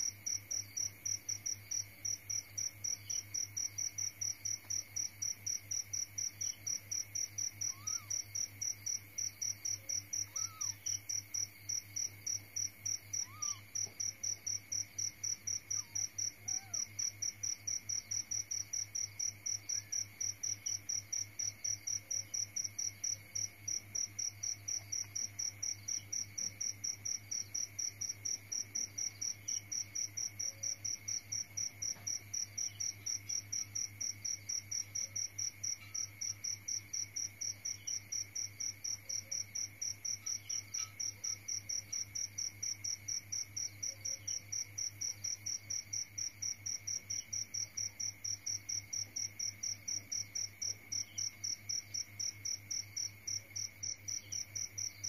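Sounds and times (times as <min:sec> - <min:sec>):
cricket chirping: 0:00.0 - 0:55.0.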